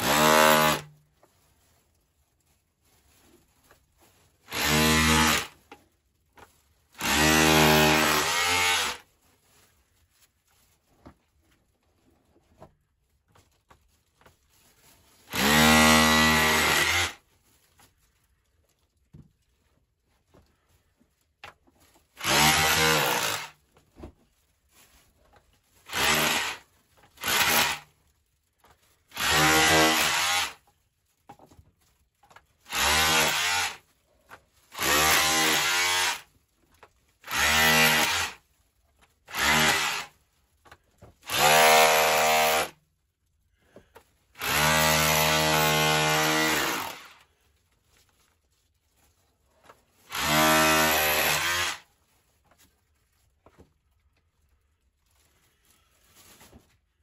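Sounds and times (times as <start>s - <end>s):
hammer drill chiselling rock: 0.0s - 0.9s, 4.5s - 5.6s, 7.0s - 9.0s, 15.3s - 17.2s, 22.2s - 23.6s, 25.9s - 27.9s, 29.1s - 30.6s, 32.7s - 33.8s, 34.8s - 36.3s, 37.2s - 38.4s, 39.3s - 40.1s, 41.2s - 42.8s, 44.4s - 47.2s, 50.1s - 51.9s.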